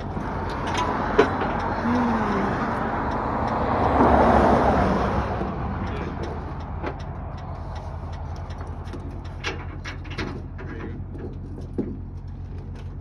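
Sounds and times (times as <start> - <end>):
vehicle passing: 0.0 - 9.8
low engine hum: 0.0 - 13.0.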